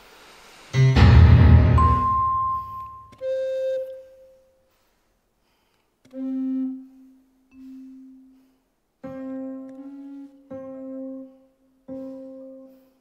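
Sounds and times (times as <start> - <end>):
chamber ensemble held notes: 0.8 - 3.0.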